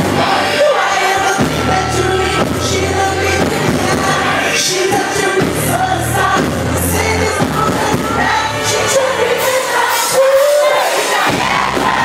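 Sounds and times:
man singing amplified: 0.0 - 10.9
deep sustained bass notes: 1.2 - 9.0.

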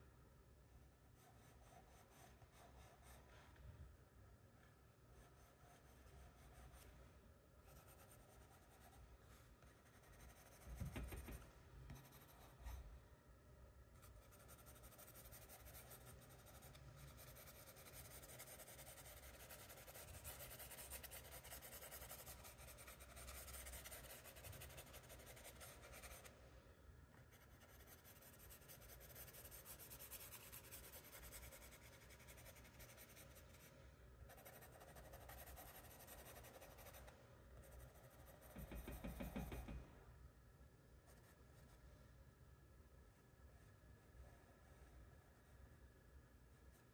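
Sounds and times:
charcoal pencil scratching paper: 14.0 - 26.3, 27.3 - 33.7, 34.3 - 39.7.

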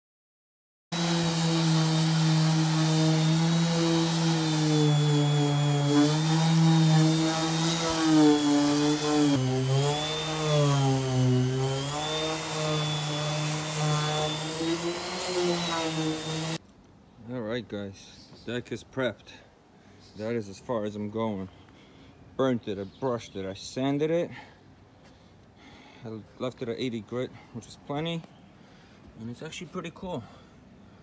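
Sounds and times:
orbital sander on wood: 0.9 - 16.6.

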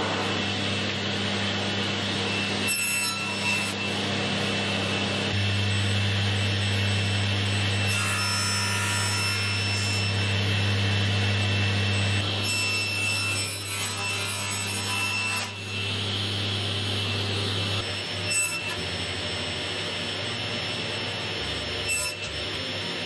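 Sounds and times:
drill press motor humming: 3.3 - 7.9, 9.4 - 13.0, 15.5 - 23.0.

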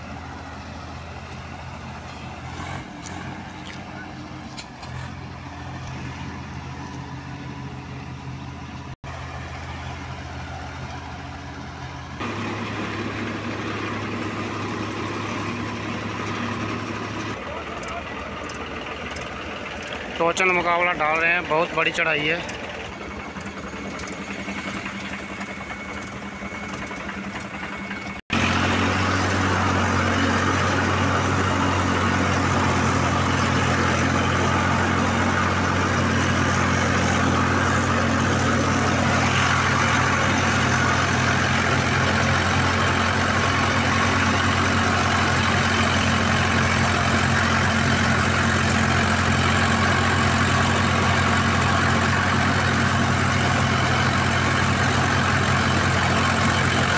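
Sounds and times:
diesel tractor engine running: 0.0 - 56.9.

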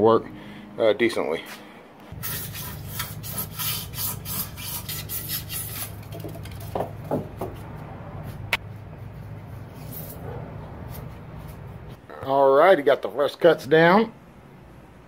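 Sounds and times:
steady low hum: 0.0 - 15.0
saw rasping through foam board: 2.2 - 6.2.

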